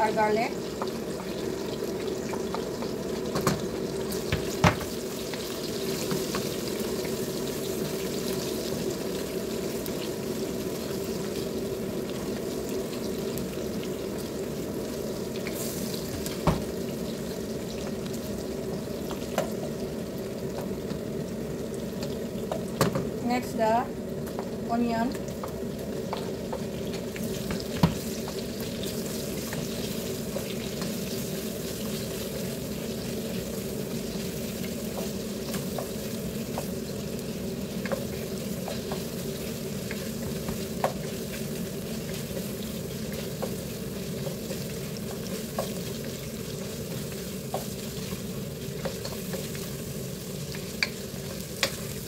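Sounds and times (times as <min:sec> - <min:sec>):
food sizzling in a pot: 0:00.0 - 0:52.0.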